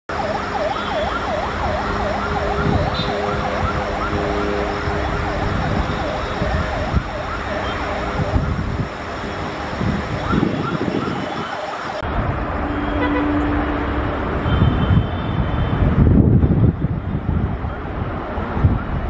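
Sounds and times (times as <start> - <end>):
siren wailing: 0.1 - 12.0.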